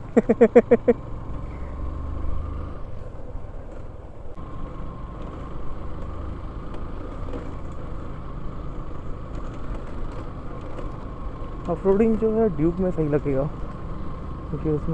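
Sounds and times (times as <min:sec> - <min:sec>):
motorcycle engine running: 0:03.7 - 0:14.9.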